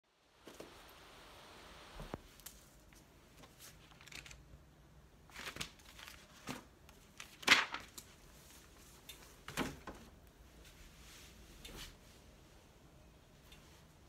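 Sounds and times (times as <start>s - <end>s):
book pages flipping: 2.2s - 4.4s, 5.3s - 9.0s.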